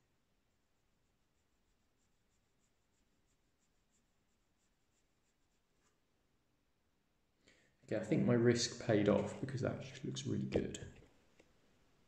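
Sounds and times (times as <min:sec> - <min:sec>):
paintbrush scratching paper: 0:00.0 - 0:06.2.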